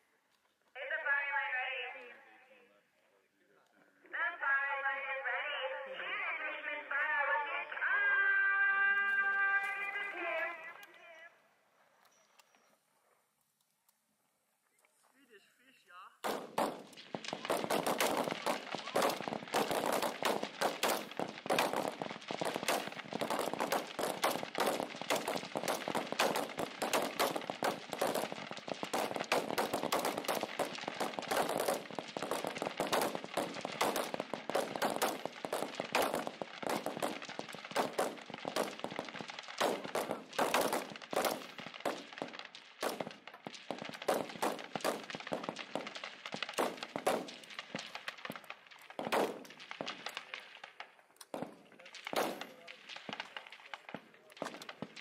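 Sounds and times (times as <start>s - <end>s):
rifles firing rapidly: 16.2s - 55.0s.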